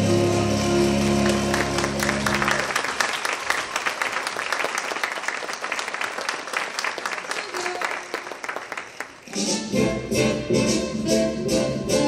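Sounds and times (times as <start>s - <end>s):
audience applause: 0.0s - 9.4s.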